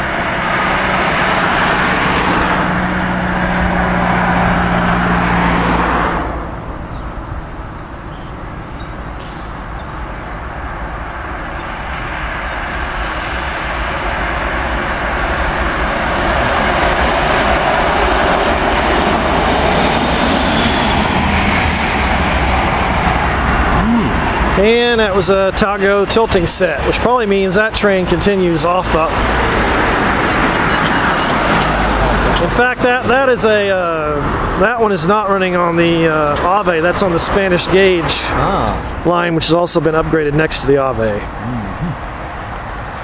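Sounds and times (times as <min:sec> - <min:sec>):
train passing on tracks: 0:00.0 - 0:24.6, 0:28.0 - 0:34.7
loud noise with low hum: 0:00.0 - 0:43.0.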